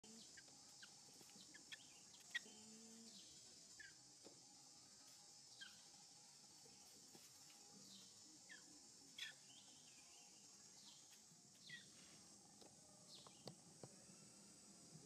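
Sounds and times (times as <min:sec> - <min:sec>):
steady high hiss: 0:00.0 - 0:15.0.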